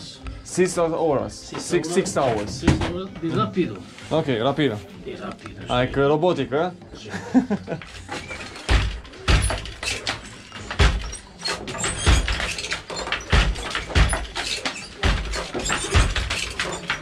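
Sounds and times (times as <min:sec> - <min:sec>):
heavy wooden loom thumps: 0:01.5 - 0:03.3, 0:08.0 - 0:17.0
sharp wooden clacks: 0:07.9 - 0:17.0.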